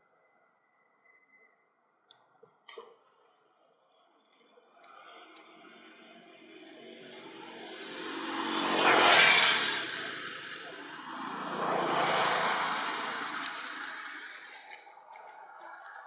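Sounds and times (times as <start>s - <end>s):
motor vehicles passing by: 4.9s - 16.0s.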